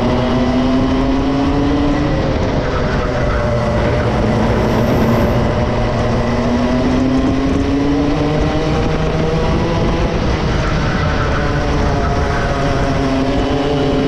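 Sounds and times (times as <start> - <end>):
kart engine running hard: 0.0 - 14.0
rushing noise: 2.4 - 7.2.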